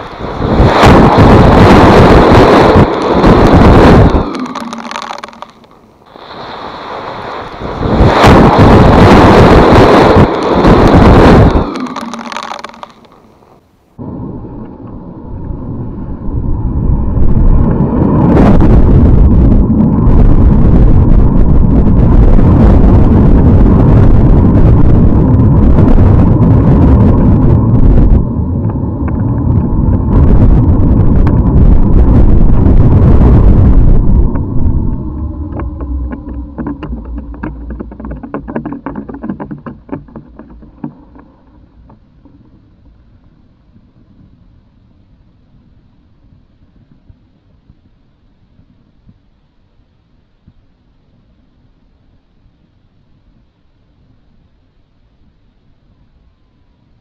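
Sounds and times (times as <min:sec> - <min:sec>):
burning matches rushing hiss: 0:00.0 - 0:13.2
sputtering crackles: 0:00.0 - 0:13.6, 0:17.5 - 0:44.4.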